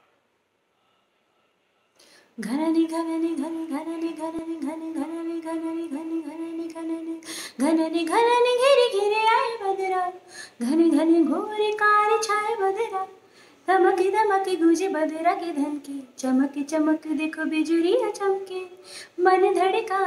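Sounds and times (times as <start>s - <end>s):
singer breathing in: 1.9s - 2.4s, 7.2s - 7.6s, 10.2s - 10.6s, 13.2s - 13.7s, 18.8s - 19.2s.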